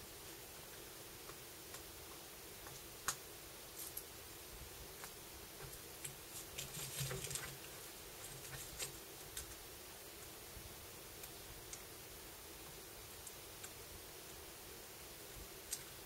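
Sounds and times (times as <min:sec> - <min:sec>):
small clicks and crinkling: 0:05.0 - 0:09.6.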